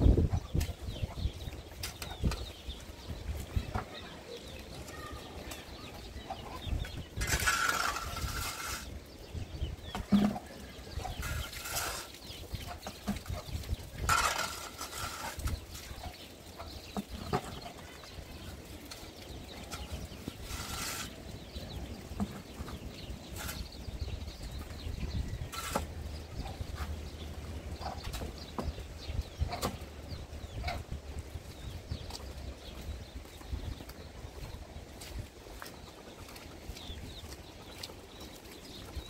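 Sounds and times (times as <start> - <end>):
shovel scraping dirt: 7.2 - 9.0, 11.1 - 12.3, 14.0 - 15.9, 19.7 - 21.4, 23.3 - 23.8, 25.4 - 26.9.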